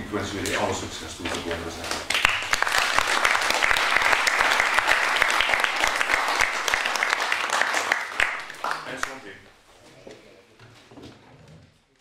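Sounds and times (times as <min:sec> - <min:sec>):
group applauding: 0:01.4 - 0:09.5.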